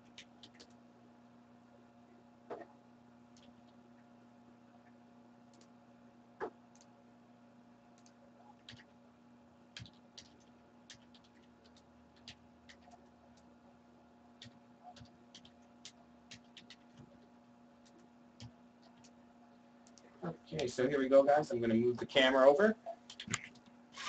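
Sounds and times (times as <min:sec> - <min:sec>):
low steady hum: 0:00.0 - 0:24.0
faint clicks and taps: 0:04.8 - 0:05.8, 0:09.8 - 0:13.5, 0:14.4 - 0:20.7.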